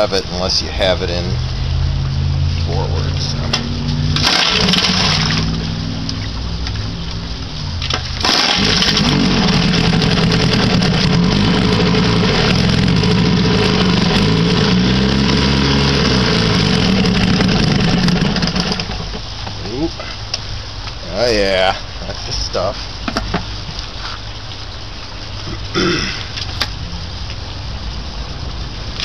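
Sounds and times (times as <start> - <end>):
outboard motor running: 3.3 - 6.3, 7.8 - 19.8.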